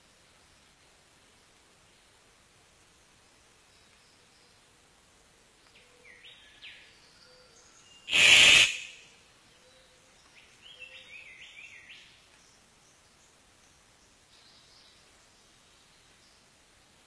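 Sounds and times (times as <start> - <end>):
faint bird chirps: 5.7 - 16.5
bird harsh rasping call: 8.1 - 9.0.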